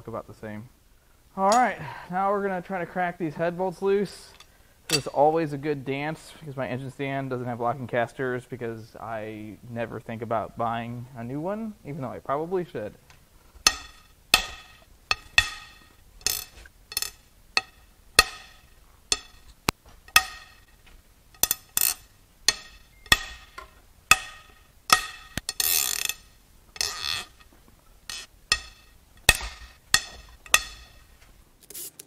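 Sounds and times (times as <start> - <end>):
ratchet clicking on bolts: 13.6 - 27.5, 28.1 - 31.1.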